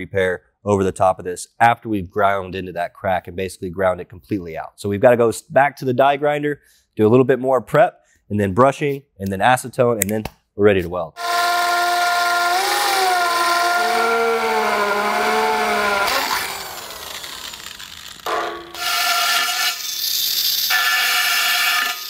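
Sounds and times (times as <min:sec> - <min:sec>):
die grinder high-pitched whine: 0:11.2 - 0:22.0
power drill motor whine: 0:11.2 - 0:22.0.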